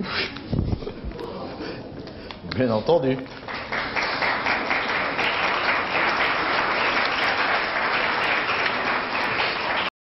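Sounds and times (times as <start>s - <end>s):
audience applauding: 3.4s - 9.9s.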